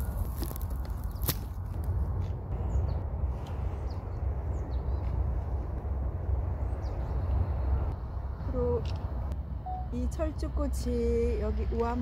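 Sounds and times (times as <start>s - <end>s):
wind rumble on microphone: 0.0s - 9.5s.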